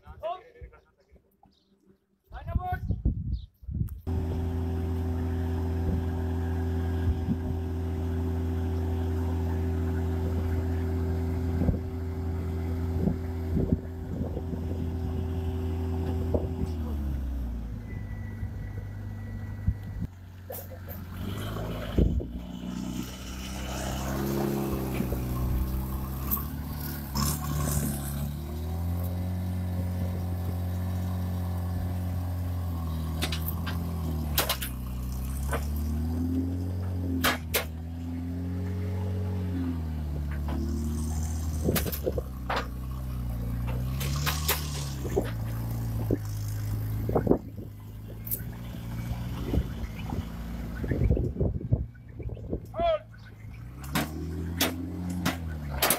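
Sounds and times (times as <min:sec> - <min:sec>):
engine running: 0:04.0 - 0:55.9
metallic clanks and clicks: 0:53.8 - 0:55.9.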